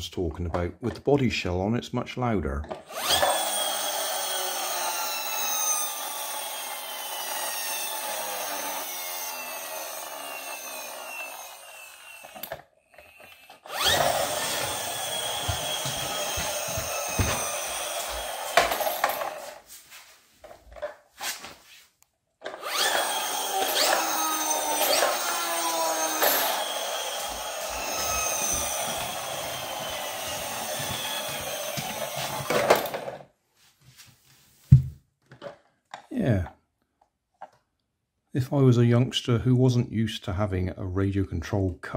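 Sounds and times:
toy car flywheel whirring: 0:02.7 - 0:19.6, 0:22.4 - 0:33.2.

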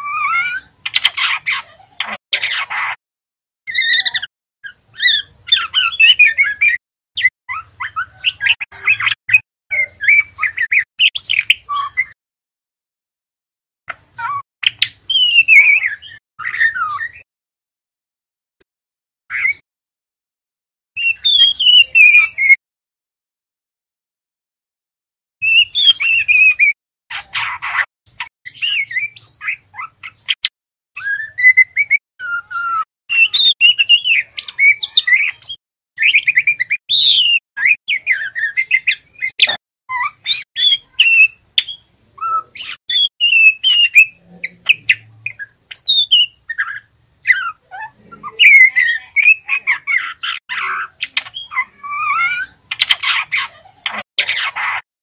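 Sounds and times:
bird chirps and twittering whistles: 0:03.7 - 0:12.2, 0:14.2 - 0:17.2, 0:19.3 - 0:19.6, 0:21.0 - 0:22.6, 0:25.4 - 0:53.5.

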